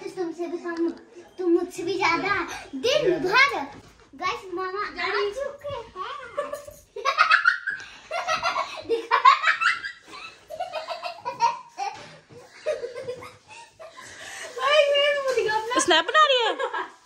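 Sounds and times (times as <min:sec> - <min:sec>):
people laughing: 0:06.4 - 0:14.2.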